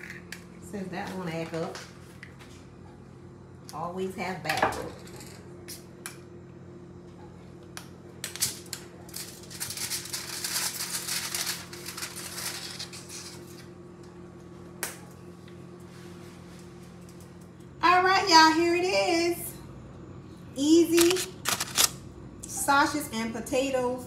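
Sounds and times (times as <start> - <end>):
aluminum foil crinkling: 8.4 - 13.7, 21.0 - 21.9.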